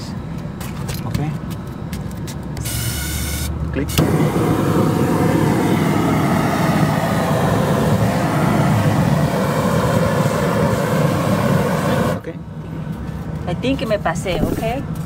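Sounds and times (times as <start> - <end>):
gas torch burning: 2.0 - 12.4.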